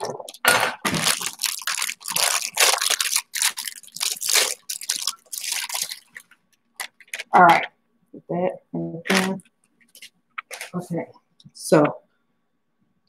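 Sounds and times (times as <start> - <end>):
plastic wrapper crinkling: 0.0 - 7.7, 9.1 - 10.8.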